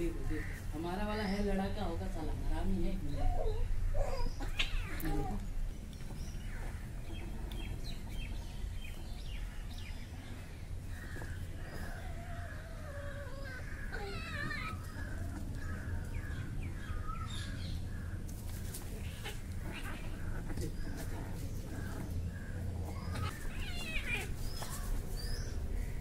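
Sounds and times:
birds chirping and calling: 0:00.0 - 0:26.0
steady low rumble: 0:05.4 - 0:13.0, 0:14.8 - 0:26.0.

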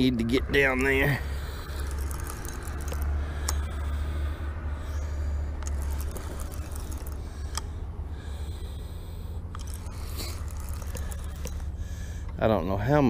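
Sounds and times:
spinning reel cranking: 0:00.5 - 0:08.8, 0:09.5 - 0:12.2
sharp clicks: 0:00.6 - 0:04.1, 0:04.9 - 0:07.9, 0:09.4 - 0:12.4.

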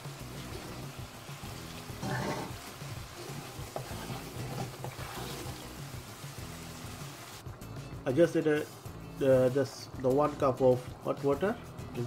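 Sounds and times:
sizzling sauce being stirred: 0:00.0 - 0:08.0.

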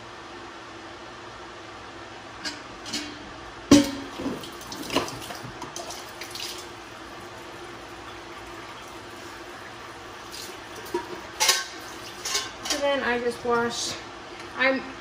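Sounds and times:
milk trickling into pitcher: 0:04.2 - 0:12.3.

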